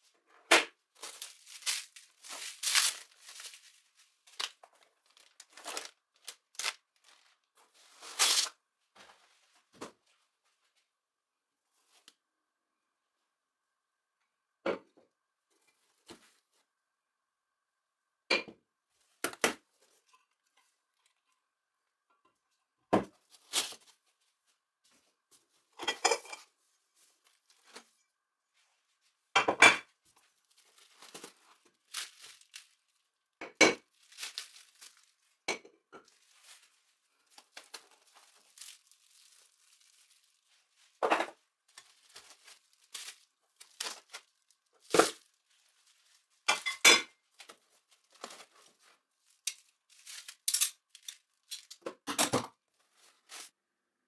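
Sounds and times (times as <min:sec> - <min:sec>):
bubble wrap crinkling: 0:00.9 - 0:08.6, 0:23.2 - 0:24.1, 0:30.1 - 0:35.4, 0:36.0 - 0:46.5, 0:47.2 - 0:51.8.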